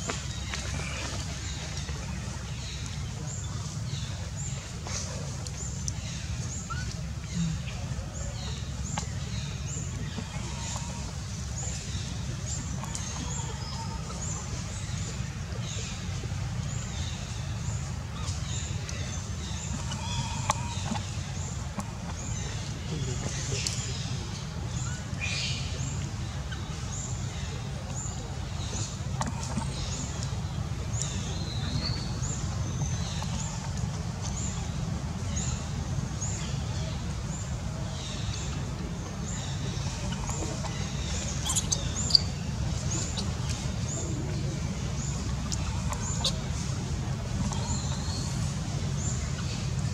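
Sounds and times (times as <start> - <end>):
steady low rumble: 0.0 - 49.9
birds chirping and whistling: 39.3 - 44.2.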